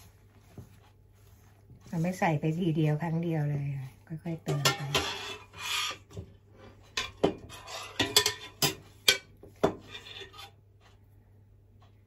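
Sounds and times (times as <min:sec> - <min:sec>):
hand kneading flour in bowl: 0:00.0 - 0:07.0.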